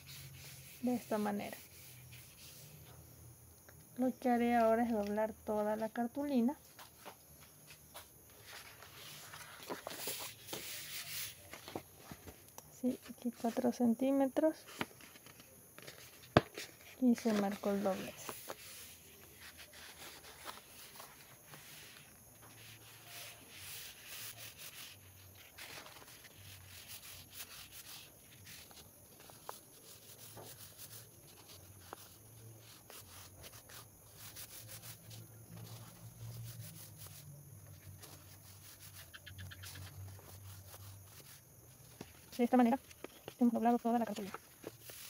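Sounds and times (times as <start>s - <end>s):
card rustling and sliding: 6.7s - 13.7s, 14.6s - 23.6s, 35.5s - 45.0s.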